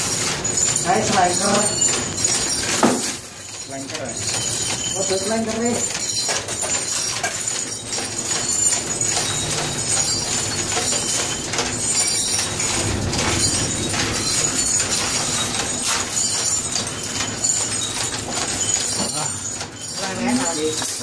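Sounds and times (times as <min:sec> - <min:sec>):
factory machinery hum: 0:09.5 - 0:18.2.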